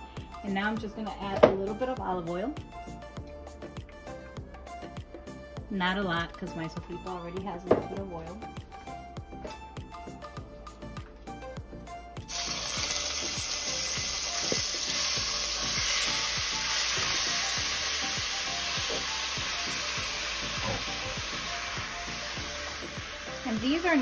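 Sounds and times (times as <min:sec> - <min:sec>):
background music with a beat: 0:00.0 - 0:24.0
meat sizzling in hot oil: 0:12.3 - 0:24.0.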